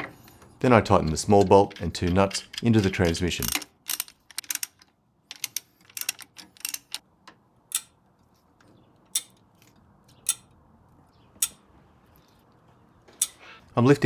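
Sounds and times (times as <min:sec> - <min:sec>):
ratchet wrench clicking: 0:01.6 - 0:07.0.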